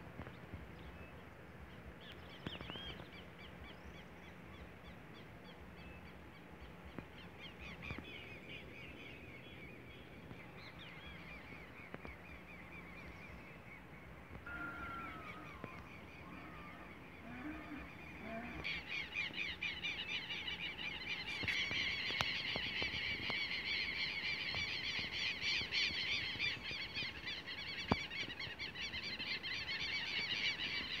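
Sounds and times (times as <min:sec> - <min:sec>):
soft gliding calls: 0:10.1 - 0:26.4.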